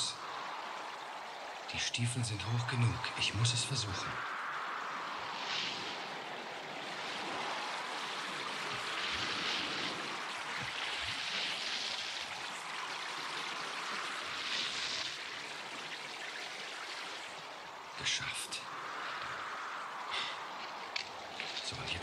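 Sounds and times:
wash of water: 0.0s - 22.0s.

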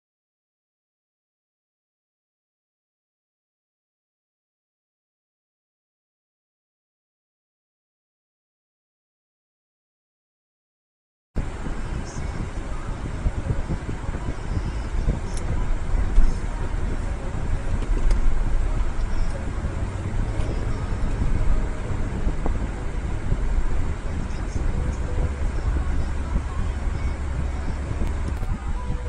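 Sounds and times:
car driving road rumble: 11.4s - 29.0s.

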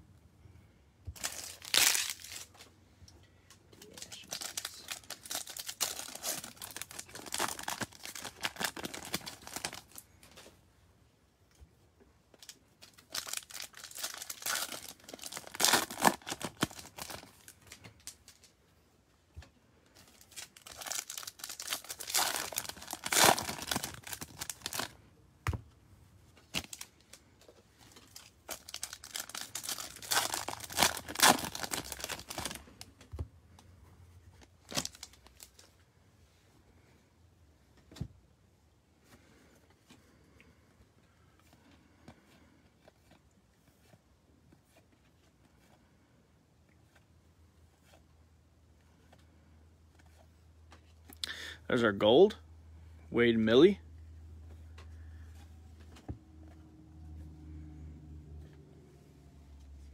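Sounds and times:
wrappers tearing and crinkling: 1.2s - 2.7s, 3.8s - 10.0s, 12.4s - 18.5s, 20.0s - 25.0s, 26.5s - 27.2s, 27.9s - 32.9s, 34.6s - 35.7s.

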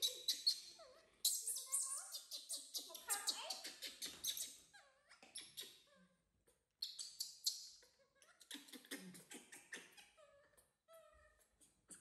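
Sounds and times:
baby monkey squeaking calls: 0.0s - 5.8s.

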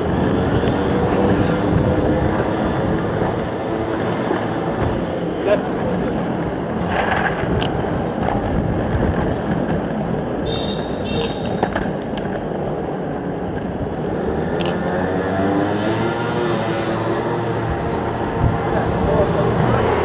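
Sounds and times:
skate wheels rolling on pavement: 0.0s - 20.0s
sharp clicks: 14.6s - 14.8s.

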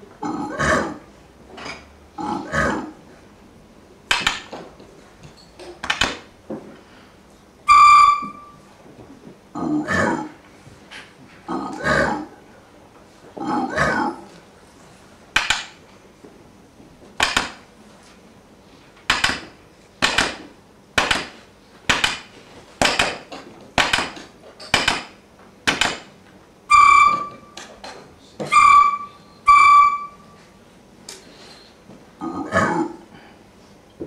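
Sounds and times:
recorder playing: 7.7s - 8.6s, 26.7s - 27.6s, 28.5s - 30.4s.

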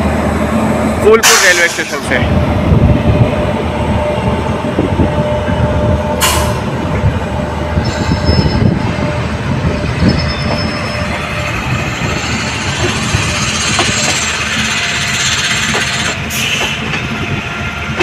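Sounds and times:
train wheels rumbling on rails: 0.0s - 18.0s
high wheel squeals: 7.8s - 8.9s, 9.6s - 16.8s.

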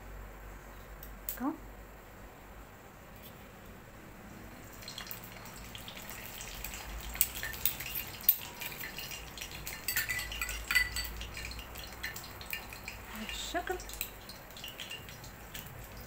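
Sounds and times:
dough frying in hot oil: 4.3s - 16.0s
metal spoon clinking on pan: 6.3s - 16.0s.

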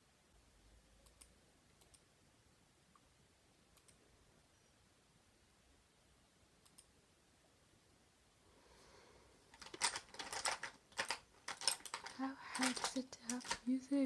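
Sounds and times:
small objects clicking and rattling: 9.5s - 13.8s.

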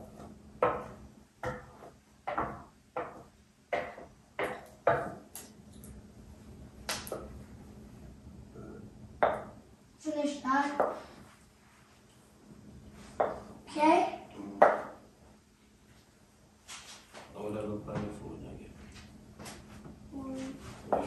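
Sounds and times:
wooden spoon knocking on a bowl: 0.6s - 5.3s, 9.2s - 9.6s.

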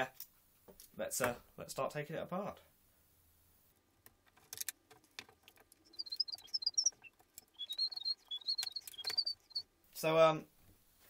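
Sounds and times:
short high thin chirps: 5.8s - 9.6s.

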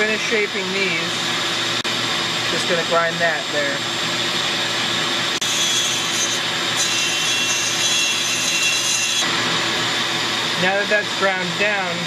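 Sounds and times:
shop vacuum droning: 0.0s - 12.0s
rotary tool grinding metal: 5.4s - 9.3s.

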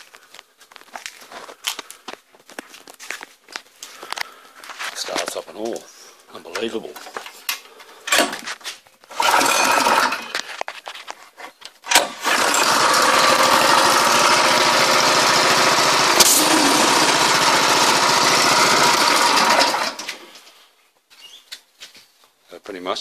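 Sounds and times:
go-kart engine running: 9.1s - 10.3s, 11.9s - 20.4s.

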